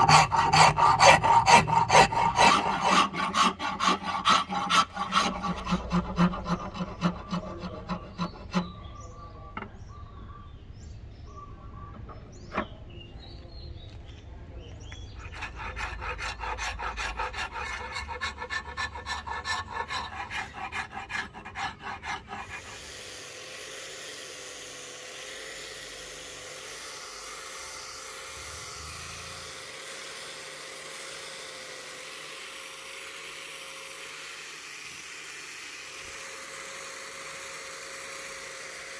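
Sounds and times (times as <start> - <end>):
angle grinder sanding: 0.0 - 8.9, 15.2 - 38.9
hand file rasping on wood: 0.0 - 8.9, 15.2 - 23.1.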